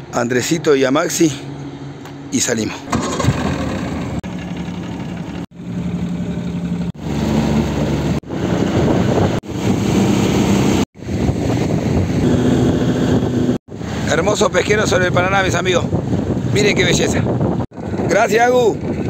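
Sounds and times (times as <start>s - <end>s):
outboard motor running: 2.8s - 11.2s
wind on microphone: 7.0s - 19.0s.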